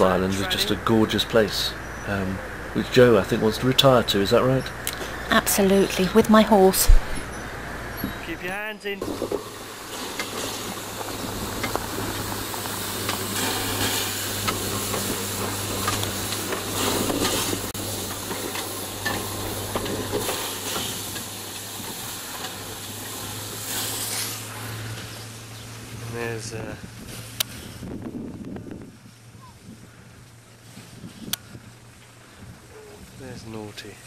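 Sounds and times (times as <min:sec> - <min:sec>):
low hum: 0:00.0 - 0:34.0
steam hissing: 0:08.2 - 0:25.6.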